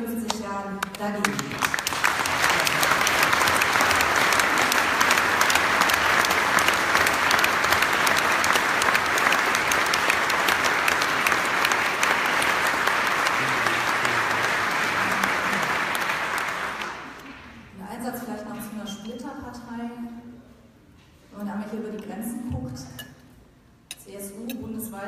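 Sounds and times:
speech: 0.0 - 1.6, 17.8 - 20.6, 21.3 - 23.0, 24.0 - 25.0
audience applauding: 0.9 - 17.6.

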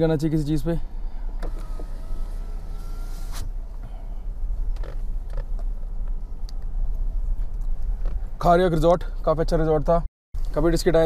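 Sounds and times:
car engine and road rumble: 0.0 - 11.0
light clicks and creaks: 4.6 - 8.3.

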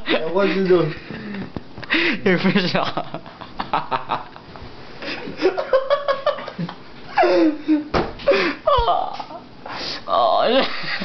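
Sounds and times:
laughter: 2.4 - 4.4, 5.0 - 7.9, 10.6 - 11.0
person's wavering wordless voice: 10.1 - 10.6.

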